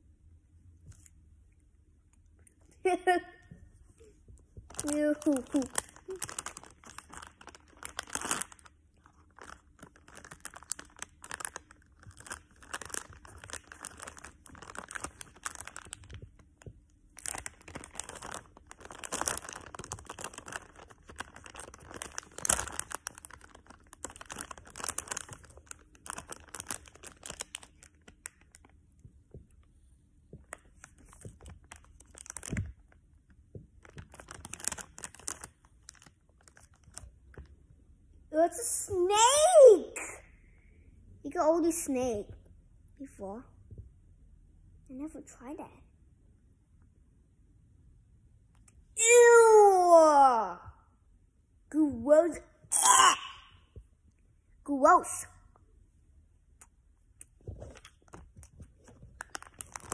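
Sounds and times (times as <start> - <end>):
candy wrapper crinkling and tearing: 4.6 - 28.8, 30.4 - 37.4, 52.8 - 53.6, 56.6 - 59.9.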